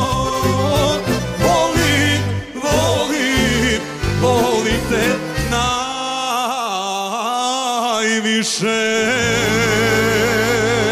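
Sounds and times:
instrumental backing: 0:00.0 - 0:06.0.

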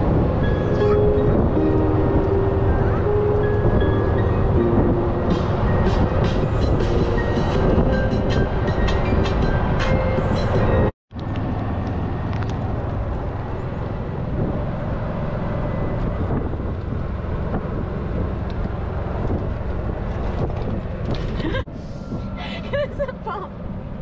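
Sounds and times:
wind buffeting microphone: 0:00.0 - 0:24.0
golf cart motor and tyres: 0:11.1 - 0:22.4.

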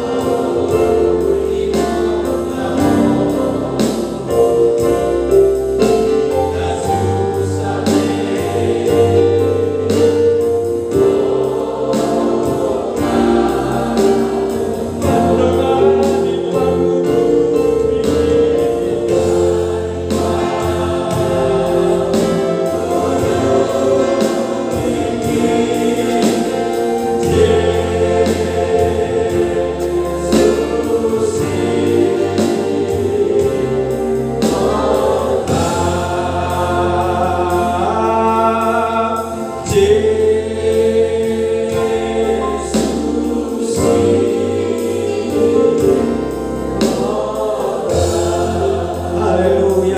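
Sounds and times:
electronic keyboard beat: 0:00.0 - 0:49.9
voices singing a hymn: 0:00.0 - 0:49.9.

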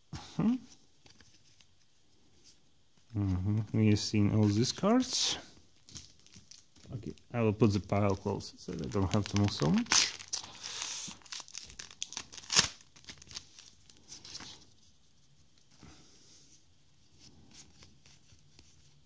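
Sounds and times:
cards being handled: 0:01.0 - 0:02.6, 0:08.0 - 0:14.6
foil wrapper tearing and crinkling: 0:05.8 - 0:07.1, 0:08.7 - 0:14.1.

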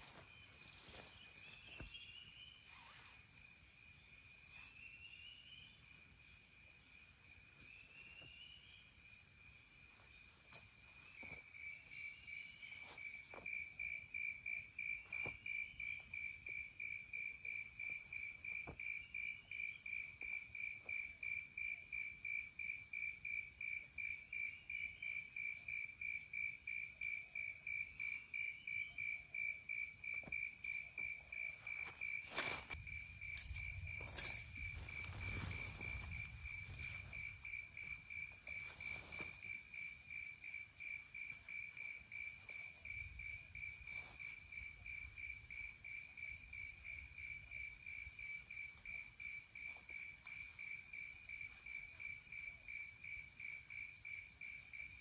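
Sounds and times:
rustle: 0:00.0 - 0:06.0, 0:09.7 - 0:13.5, 0:30.2 - 0:45.7
insect pulsing trill: 0:24.4 - 0:55.0.

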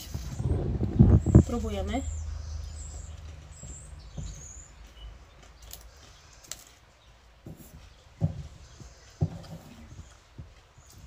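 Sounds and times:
quiet chewing: 0:02.2 - 0:11.0.

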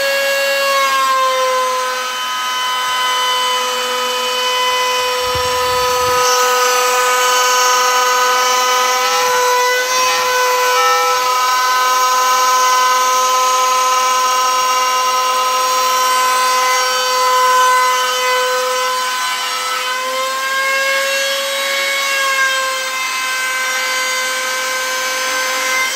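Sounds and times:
router spindle whining: 0:00.0 - 0:20.5
end mill cutting wood: 0:00.0 - 0:25.9.

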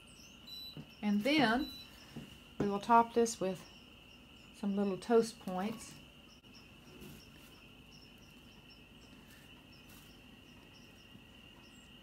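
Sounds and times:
high-pitched chirring: 0:00.0 - 0:02.2.

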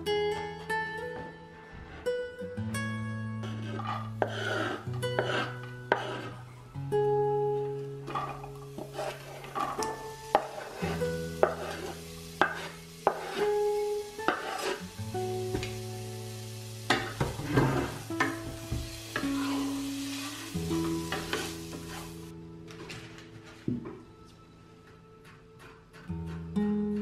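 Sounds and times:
spatula knocking and scraping pot: 0:03.4 - 0:06.4, 0:08.1 - 0:13.6, 0:14.2 - 0:14.8
onion sizzling in pot: 0:03.4 - 0:06.5, 0:08.0 - 0:22.3.

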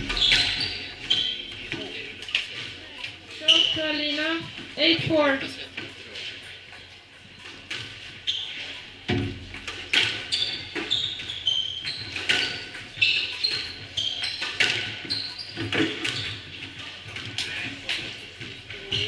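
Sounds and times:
shoe squeaks on floor: 0:00.0 - 0:05.0, 0:06.7 - 0:09.0, 0:10.0 - 0:17.7.

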